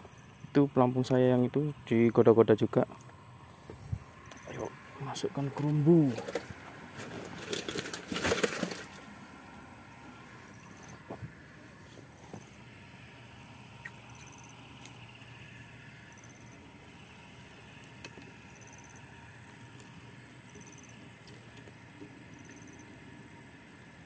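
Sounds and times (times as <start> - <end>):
steady low hum: 0.0 - 24.0
handling clicks and knocks: 5.5 - 9.0.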